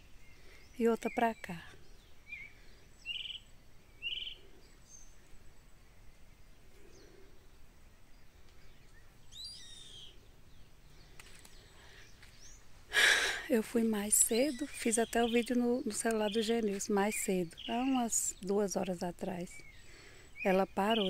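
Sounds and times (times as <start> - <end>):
faint chirping calls: 0.0 - 21.0
bird of prey calling: 2.2 - 5.2, 9.3 - 10.2.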